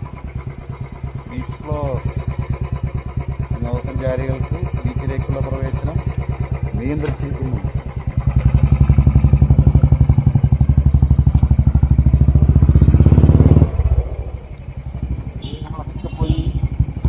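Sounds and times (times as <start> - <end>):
motorcycle engine thumping: 0.0 - 17.0.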